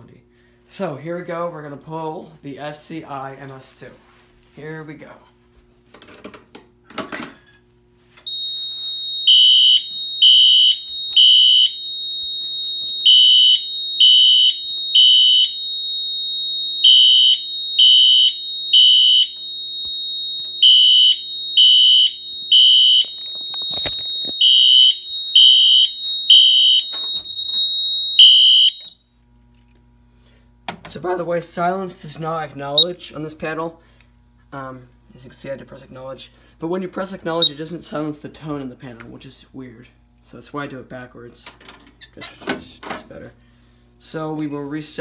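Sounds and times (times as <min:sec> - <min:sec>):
fire alarm horn beeps: 0:08.2 - 0:29.1
steady high alarm panel tone: 0:08.2 - 0:29.7.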